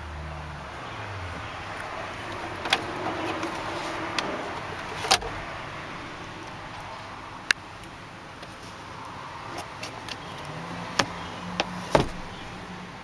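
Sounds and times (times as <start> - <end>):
steady cabin hum: 1.2 - 8.4, 10.9 - 12.6
glove box clicking open: 9.8 - 12.4.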